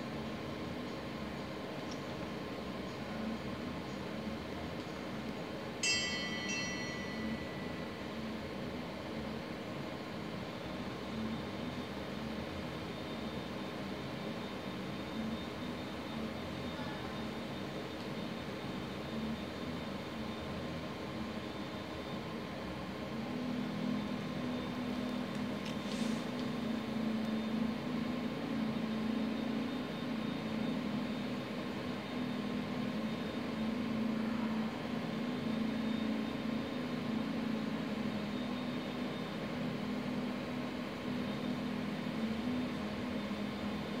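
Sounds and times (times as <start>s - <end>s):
constant background hiss: 0.0s - 44.0s
low mechanical hum with whine: 0.0s - 44.0s.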